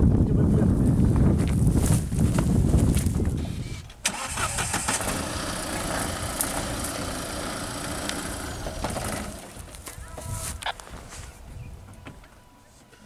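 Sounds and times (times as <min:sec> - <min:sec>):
diesel engine running at low revs: 0:04.8 - 0:09.8.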